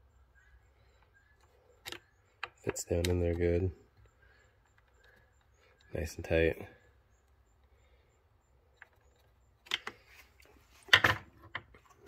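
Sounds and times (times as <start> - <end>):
hand tools clicking on wooden bench: 1.8 - 5.5.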